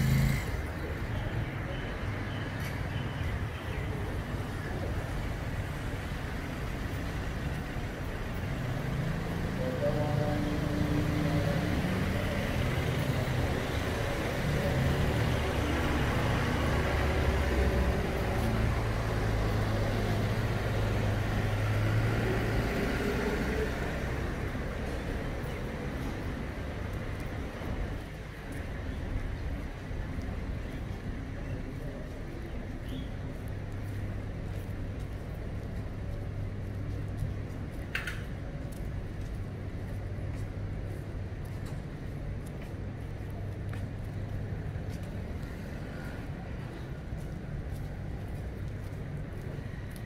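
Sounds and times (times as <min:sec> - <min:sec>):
vehicle engine humming: 0:00.0 - 0:01.6
road noise: 0:00.0 - 0:50.0
traffic hum: 0:00.0 - 0:50.0.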